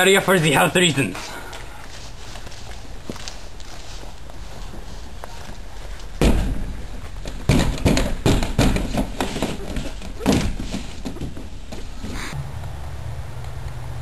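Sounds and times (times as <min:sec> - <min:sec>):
thumps against plastic panels: 0:06.2 - 0:11.9.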